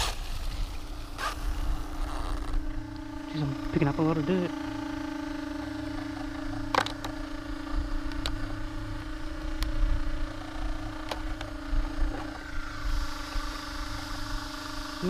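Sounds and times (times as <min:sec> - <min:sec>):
electric rc car whine: 0:00.0 - 0:15.0.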